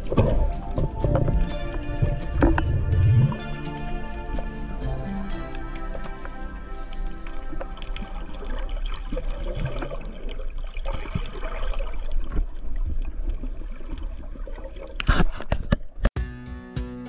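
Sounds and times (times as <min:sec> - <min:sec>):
underwater rush of water: 0:00.0 - 0:15.5.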